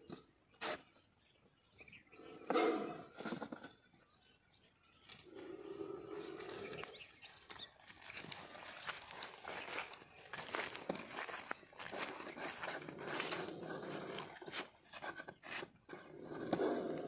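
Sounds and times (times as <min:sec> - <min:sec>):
scraping rustle of plastic jar: 0:10.9 - 0:17.0.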